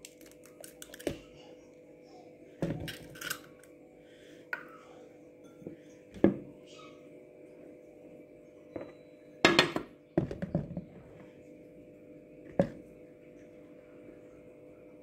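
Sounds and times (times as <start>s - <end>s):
faint steady hum: 0.0s - 15.0s
bowl and containers knocking: 8.7s - 11.0s.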